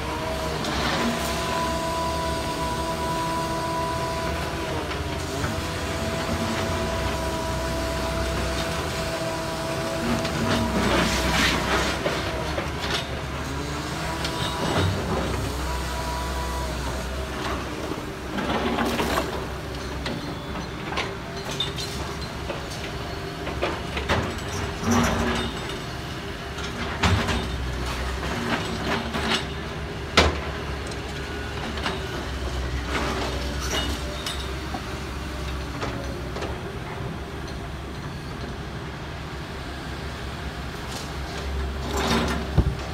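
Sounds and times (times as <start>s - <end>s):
buckets scraping concrete rubble: 0.0s - 23.0s, 23.6s - 26.0s, 41.0s - 42.9s
diesel engines running: 0.0s - 42.9s
clanks of concrete and steel: 18.2s - 37.7s, 40.9s - 42.9s.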